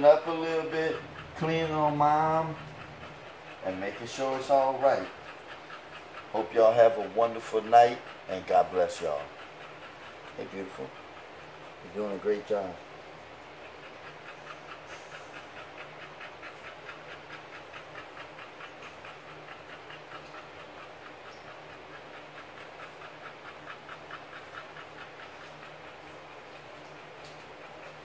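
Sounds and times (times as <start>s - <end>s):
dog panting: 0.0s - 28.0s.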